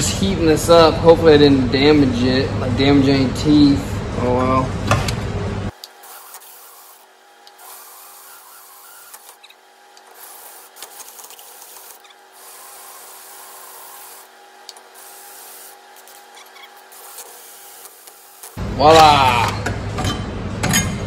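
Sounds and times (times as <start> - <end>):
drill hole saw cutting metal: 5.8 - 18.6.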